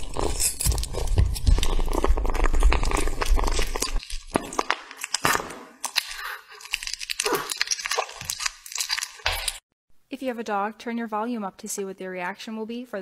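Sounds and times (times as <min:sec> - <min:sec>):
kitten chewing and licking meat: 0:00.0 - 0:09.6.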